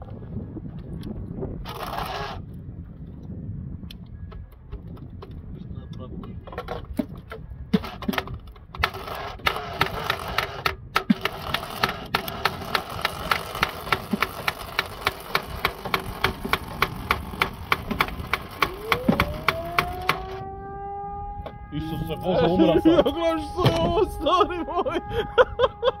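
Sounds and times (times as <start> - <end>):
starter motor cranking engine: 1.6 - 2.4, 7.8 - 20.4
rising whine: 12.7 - 26.0.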